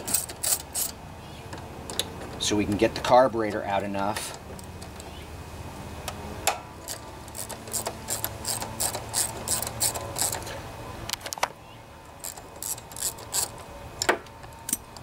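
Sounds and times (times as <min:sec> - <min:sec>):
ratchet wrench clicking: 0:00.0 - 0:01.0, 0:06.8 - 0:10.5, 0:12.2 - 0:13.6.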